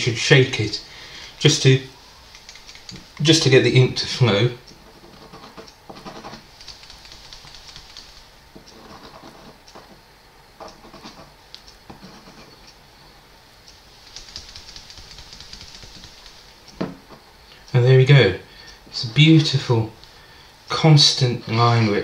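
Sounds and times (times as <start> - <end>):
pen nib scratching on paper: 5.1 - 9.6, 14.1 - 16.5.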